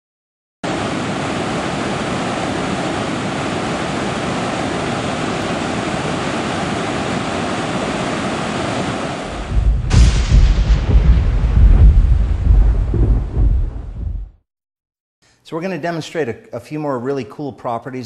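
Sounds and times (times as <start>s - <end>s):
waterfall rushing: 0.7s - 9.6s
deep rumble of thunder: 9.3s - 14.4s.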